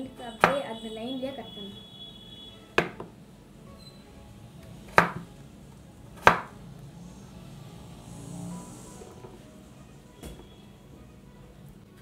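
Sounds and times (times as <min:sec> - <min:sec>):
knife chopping on cutting board: 0:02.8 - 0:03.1, 0:04.9 - 0:05.3, 0:06.2 - 0:06.5.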